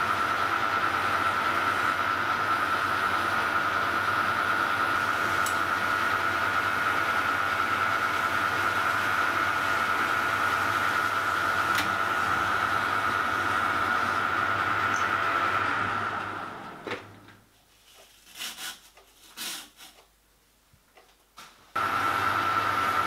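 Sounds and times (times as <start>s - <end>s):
metal lathe whining: 0.0s - 16.9s, 21.8s - 23.0s.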